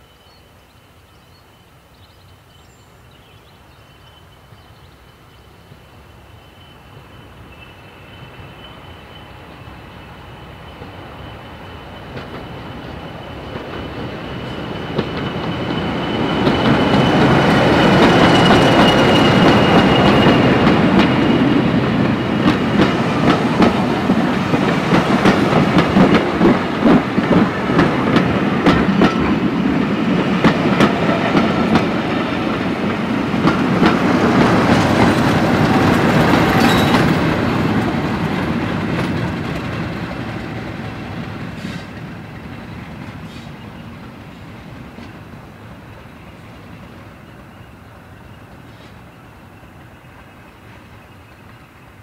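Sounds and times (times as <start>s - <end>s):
diesel locomotive passing: 4.4s - 52.0s
wheels clacking over rail joints: 12.0s - 43.6s.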